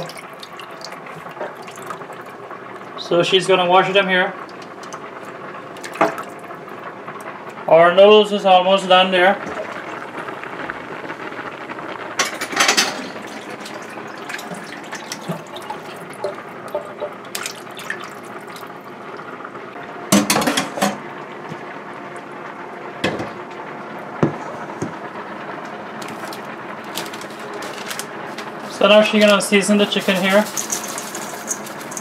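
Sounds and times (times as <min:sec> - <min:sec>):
tap water running into metal bowl: 0:00.0 - 0:02.5, 0:04.4 - 0:05.1, 0:05.7 - 0:06.4, 0:12.2 - 0:18.8, 0:29.2 - 0:32.0.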